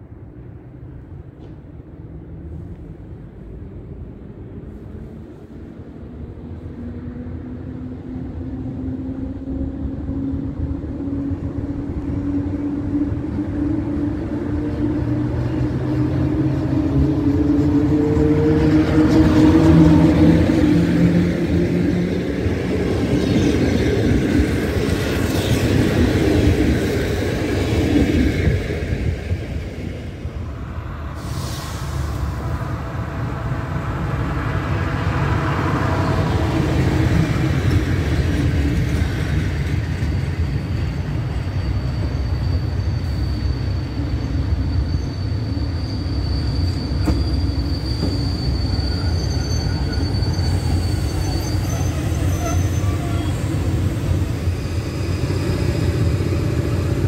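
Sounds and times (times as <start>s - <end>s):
train coaches rolling past: 0.0s - 57.0s
thin high squeal: 40.3s - 56.8s.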